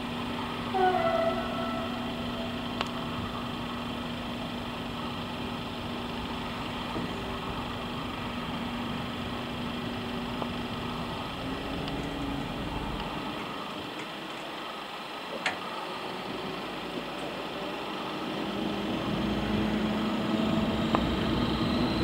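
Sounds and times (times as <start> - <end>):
diesel locomotive engine droning: 0.0 - 22.0
short falling squeal: 0.8 - 2.5, 21.1 - 22.0.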